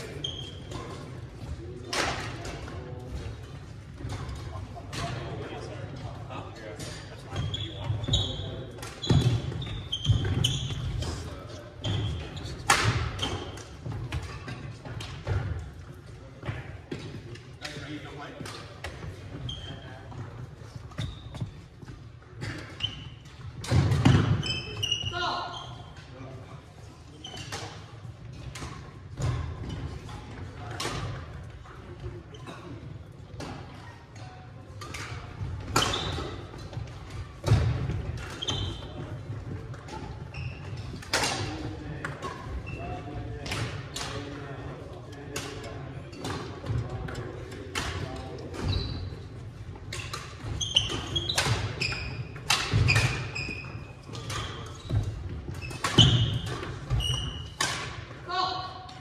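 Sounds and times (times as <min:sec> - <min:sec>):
shoes squeaking on hardwood floor: 0:00.0 - 0:01.0, 0:07.3 - 0:12.6, 0:19.3 - 0:23.3, 0:24.3 - 0:26.0, 0:38.3 - 0:39.3, 0:39.9 - 0:41.0, 0:48.6 - 0:49.4, 0:50.0 - 0:57.7
badminton rackets striking shuttlecocks: 0:49.8 - 0:58.2.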